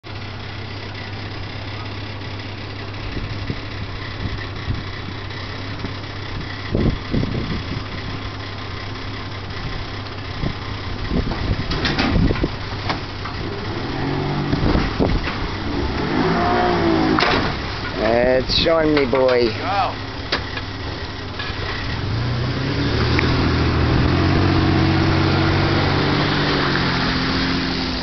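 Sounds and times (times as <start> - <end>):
outboard motor idling: 0.0 - 22.1.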